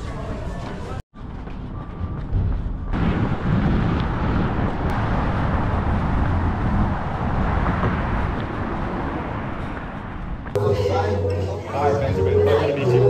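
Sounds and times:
wind buffeting microphone: 1.2s - 10.6s
road traffic: 1.4s - 13.0s.

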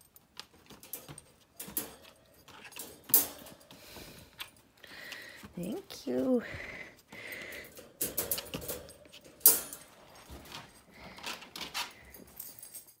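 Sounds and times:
wire crate rattling and clanking: 0.5s - 3.7s, 7.6s - 12.4s.

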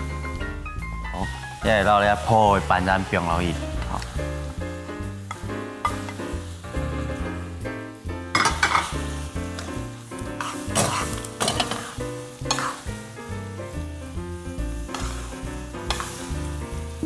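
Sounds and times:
background music: 0.0s - 17.0s
food sizzling in a frying pan: 0.0s - 17.0s
wooden spatula scraping a pan: 8.3s - 13.2s, 14.8s - 16.8s.

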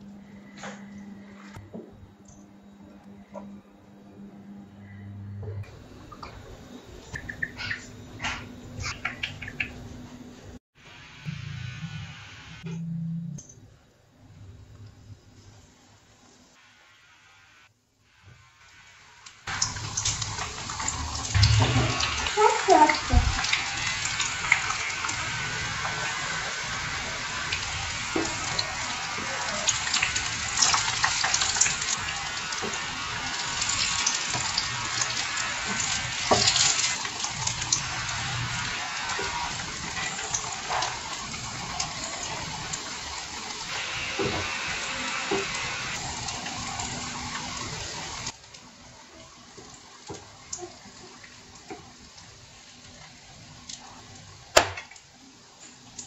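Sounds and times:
deep-frying sizzle and crackles: 15.4s - 56.0s.

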